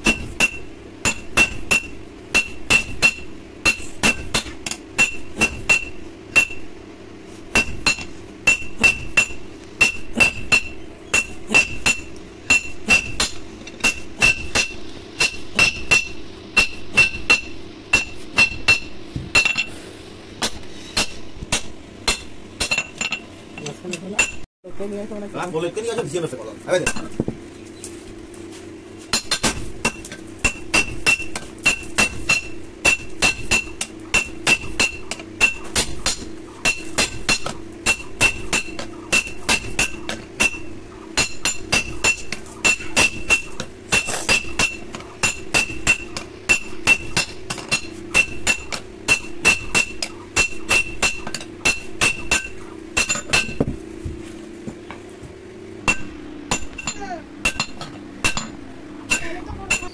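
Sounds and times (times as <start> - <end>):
hammer ringing on anvil: 0.0 - 6.6, 7.5 - 19.7, 29.1 - 53.6, 55.8 - 59.9.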